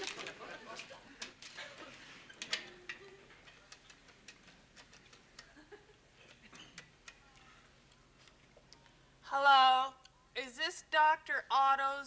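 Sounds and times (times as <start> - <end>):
typewriter keys clacking: 2.4 - 5.6.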